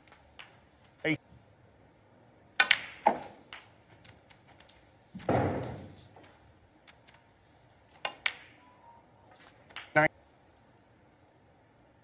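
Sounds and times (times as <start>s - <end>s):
snooker ball dropping into pocket: 2.6s - 3.7s
snooker balls clicking together: 2.6s - 4.9s, 6.2s - 8.6s, 9.4s - 10.1s.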